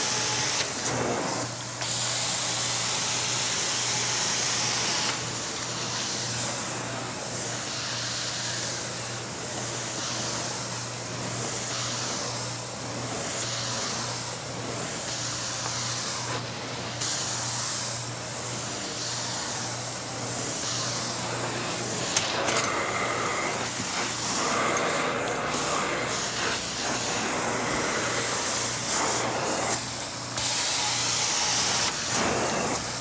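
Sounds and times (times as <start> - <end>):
extraction wand spray and suction: 19.2 - 33.0.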